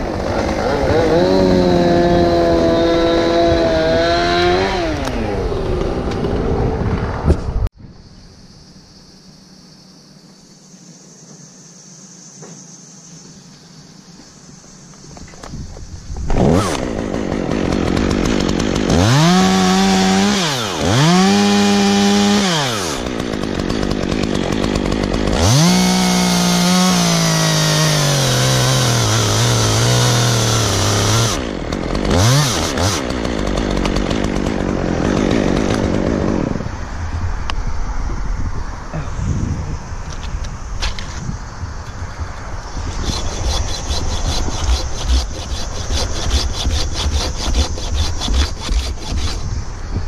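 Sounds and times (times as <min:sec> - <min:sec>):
chainsaw revving and cutting wood: 0:00.0 - 0:07.2, 0:16.2 - 0:36.9, 0:42.7 - 0:49.6.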